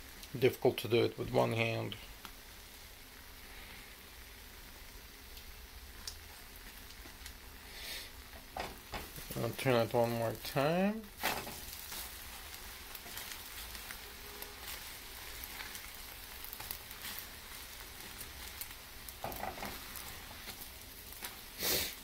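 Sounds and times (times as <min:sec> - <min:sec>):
omelette sizzling in a pan: 0:00.0 - 0:22.0.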